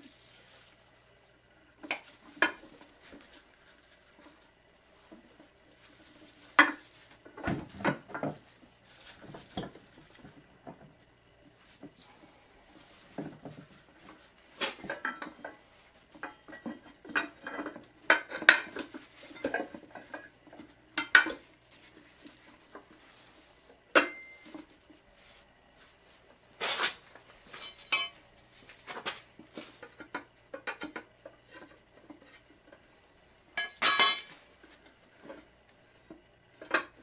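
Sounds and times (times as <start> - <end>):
steel tools clanking on wheel rim: 16.2 - 20.3, 24.0 - 24.6, 27.5 - 28.2, 33.6 - 34.4.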